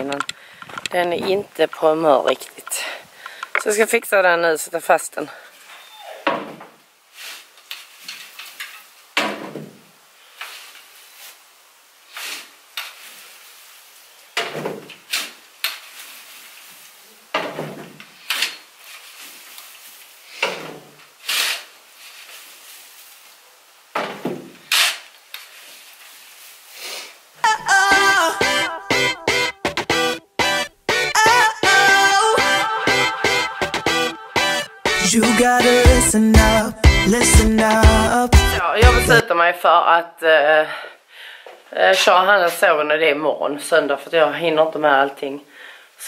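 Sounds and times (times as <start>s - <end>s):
fork scraping wood shavings: 12.1s - 13.3s, 21.2s - 23.0s.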